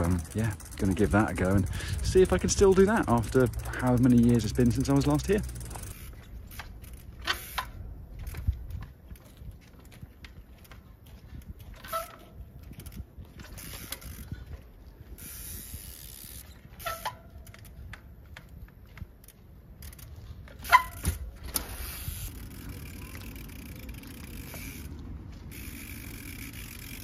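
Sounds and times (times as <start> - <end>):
bike clanking on steel rail: 0.0 - 8.5, 11.6 - 14.2, 16.4 - 18.5, 19.8 - 24.9
bicycle freewheel clicking: 0.0 - 8.8, 11.4 - 18.5, 19.2 - 27.0.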